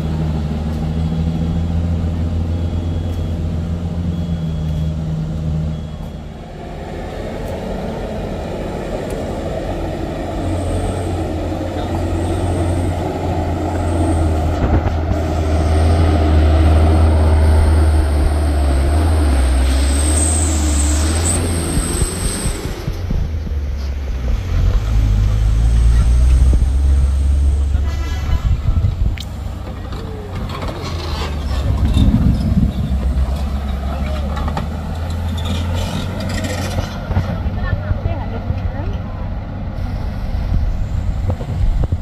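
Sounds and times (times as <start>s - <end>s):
truck diesel engine droning: 0.0s - 42.0s
faint short high beeps: 4.1s - 5.0s, 5.7s - 6.4s.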